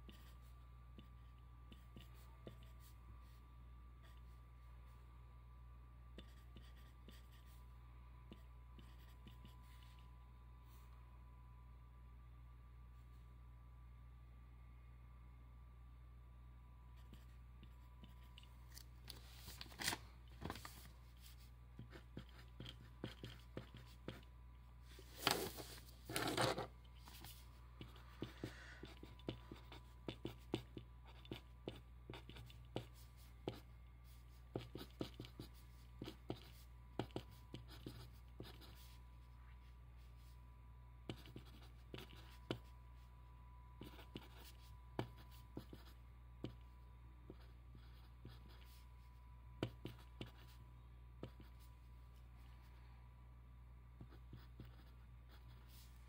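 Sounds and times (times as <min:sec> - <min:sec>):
pencil writing on paper: 0:00.0 - 0:03.0, 0:06.2 - 0:07.5, 0:08.3 - 0:10.0, 0:21.8 - 0:24.3, 0:25.3 - 0:33.6, 0:34.5 - 0:38.9, 0:41.1 - 0:42.7, 0:43.8 - 0:46.6, 0:47.3 - 0:48.8, 0:49.6 - 0:50.6, 0:54.0 - 0:55.8.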